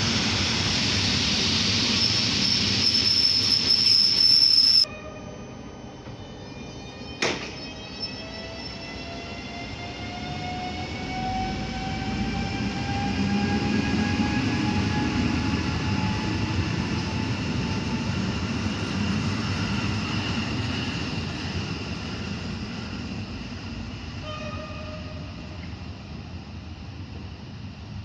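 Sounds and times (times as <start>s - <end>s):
brief high tone: 4.6s - 8.2s.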